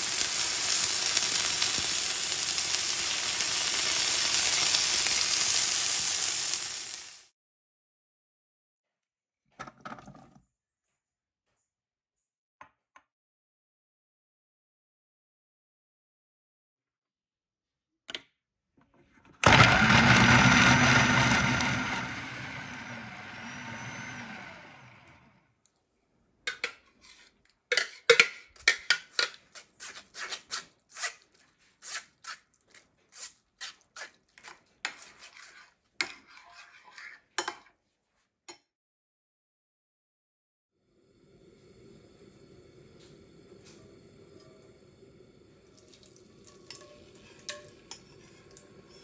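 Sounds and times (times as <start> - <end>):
food processor blending: 0.0 - 7.2, 19.4 - 25.4
spoon scraping a metal sieve: 26.5 - 37.6, 46.5 - 49.0.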